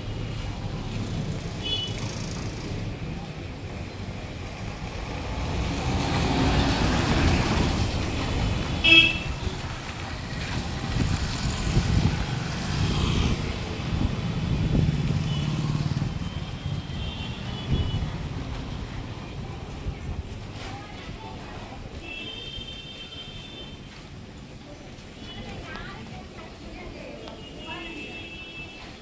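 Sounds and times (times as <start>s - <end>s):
motorcycle engines passing: 0.3s - 19.2s
vehicle horn toot: 8.8s - 9.3s.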